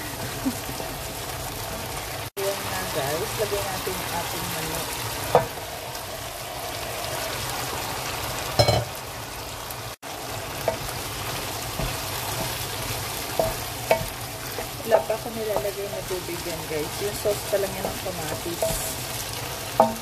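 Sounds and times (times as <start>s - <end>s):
chicken sizzling in hot oil: 0.0s - 20.0s
wooden spatula scraping pan: 11.7s - 19.1s.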